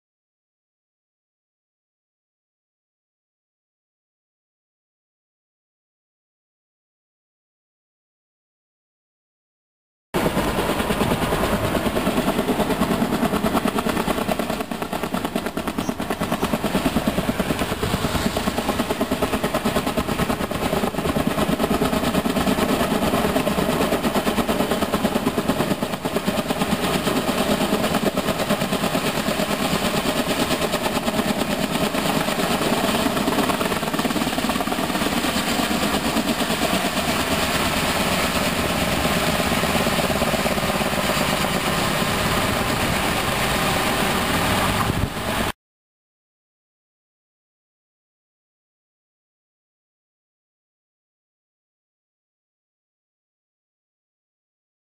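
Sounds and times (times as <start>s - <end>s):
helicopter rotors thudding: 10.2s - 45.5s
turbine running: 15.8s - 30.4s.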